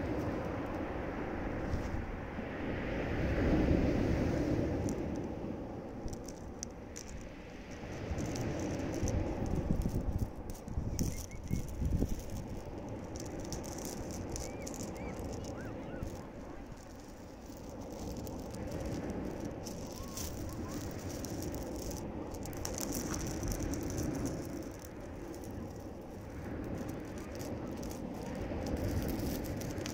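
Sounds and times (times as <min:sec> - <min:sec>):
waves washing onto pebbles: 0:00.0 - 0:29.9
pebbles rattling in backwash: 0:04.5 - 0:29.9.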